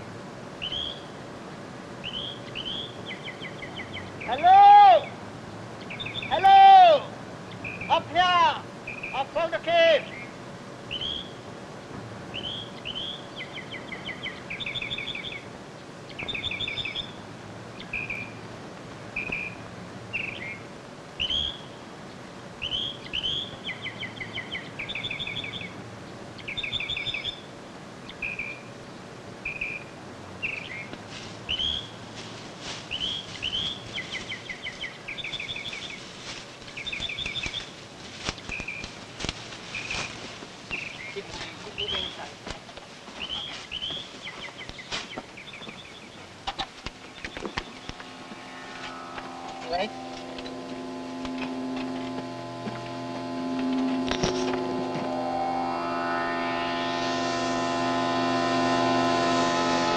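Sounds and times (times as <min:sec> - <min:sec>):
forest birds chirping: 0:00.0 - 0:59.4
sharp clicks: 0:36.6 - 0:39.4.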